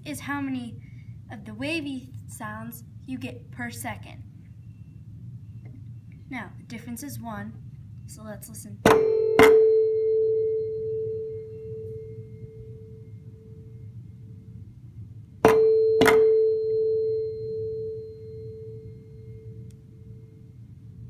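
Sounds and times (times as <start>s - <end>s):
mallet striking tuning forks: 8.9s - 12.4s, 15.4s - 18.6s
tuning forks ringing: 9.0s - 13.8s, 15.5s - 20.4s.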